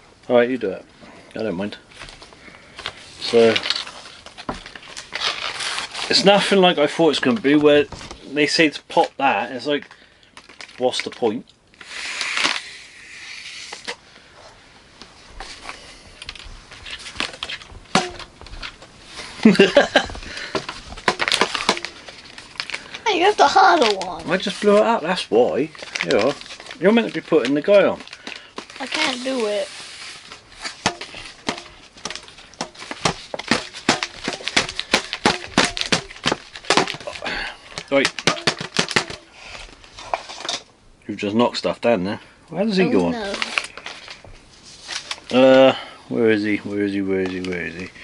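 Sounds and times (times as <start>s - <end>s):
plastic rustling: 1.6s - 40.7s, 42.7s - 45.6s, 46.4s - 48.0s
balloon squeaks and knocks: 11.8s - 14.0s, 16.8s - 22.5s, 28.6s - 40.6s.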